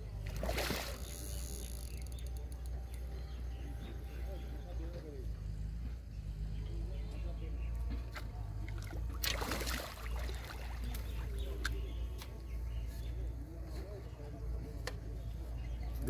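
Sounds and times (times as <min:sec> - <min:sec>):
fish splashing water: 0:00.2 - 0:01.3, 0:08.6 - 0:11.4.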